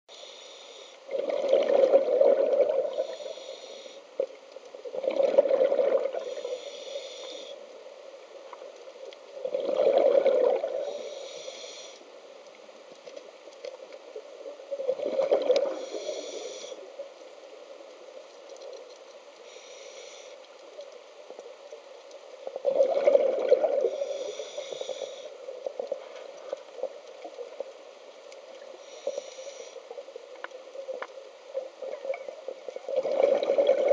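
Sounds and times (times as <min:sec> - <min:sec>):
regulator inhalation hiss: 0:00.1 - 0:01.0, 0:02.9 - 0:04.1, 0:06.2 - 0:07.7, 0:10.8 - 0:12.0, 0:15.6 - 0:16.9, 0:19.4 - 0:20.4, 0:23.8 - 0:25.4, 0:28.8 - 0:30.0
exhaled bubbles gurgling underwater: 0:01.0 - 0:03.5, 0:04.8 - 0:07.0, 0:08.5 - 0:11.5, 0:14.0 - 0:17.2, 0:22.4 - 0:33.9.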